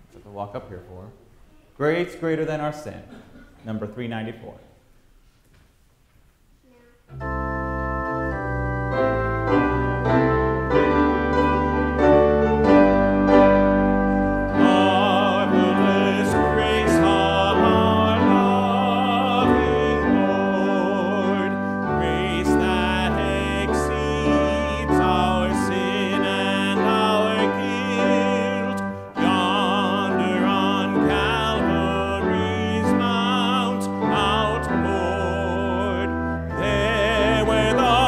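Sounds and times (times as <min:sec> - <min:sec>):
keyboard playing a hymn: 0:07.1 - 0:38.0
voices singing with vibrato: 0:14.5 - 0:38.0.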